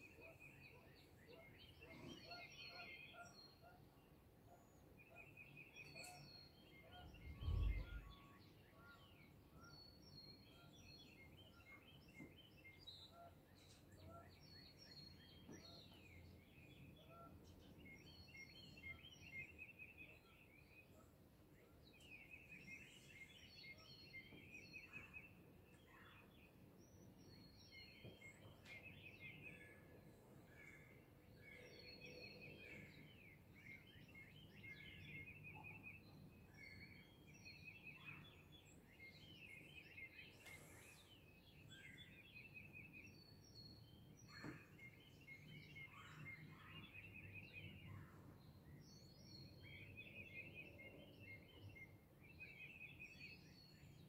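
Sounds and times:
songbirds trilling and chirping: 0.0s - 54.0s.

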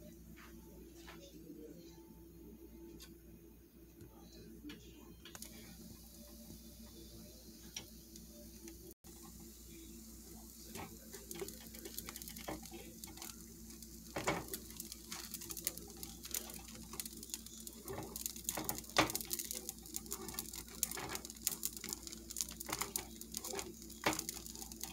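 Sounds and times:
bread crackling in frying pan: 5.3s - 24.9s.

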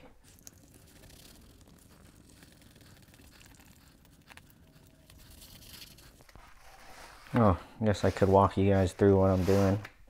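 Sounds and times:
faint rustling and handling: 3.4s - 10.0s.

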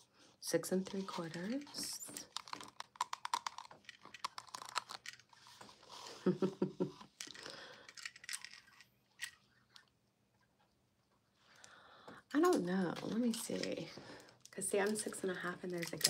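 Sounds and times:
paper rustling and crinkling: 0.8s - 5.9s.

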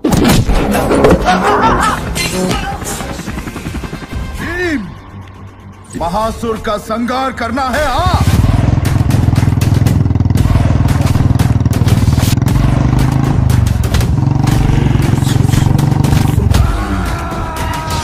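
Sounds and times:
motorcycle engine running: 8.0s - 16.8s.

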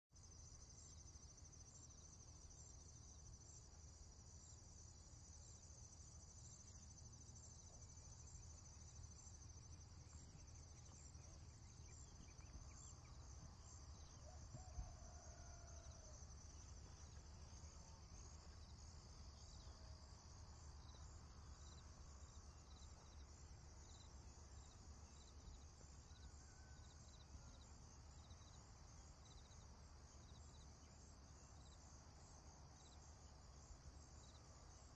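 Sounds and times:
insects chirping: 0.2s - 34.9s.

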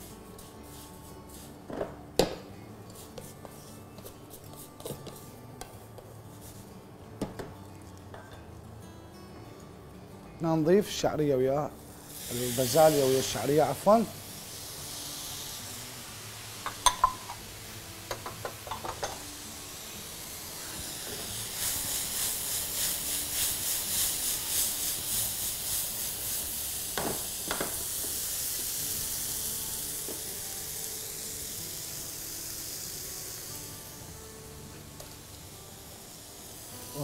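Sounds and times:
rhythmic stirring scrape: 0.0s - 1.7s, 2.9s - 5.3s, 20.6s - 26.8s
food sizzling in a pan: 11.7s - 37.0s
knocks on pan: 16.7s - 17.4s, 27.0s - 27.8s.

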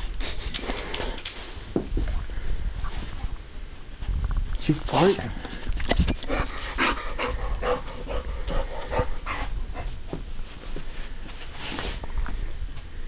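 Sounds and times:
dog breathy bursts: 6.3s - 10.0s.

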